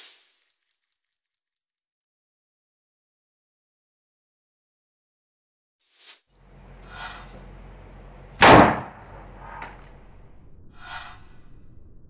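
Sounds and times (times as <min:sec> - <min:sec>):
plastic bottle bursting bang: 0:08.4 - 0:09.0.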